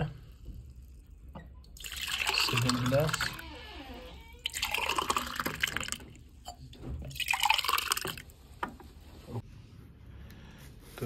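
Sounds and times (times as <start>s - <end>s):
liquid pouring: 0.0s - 3.6s, 4.2s - 8.6s.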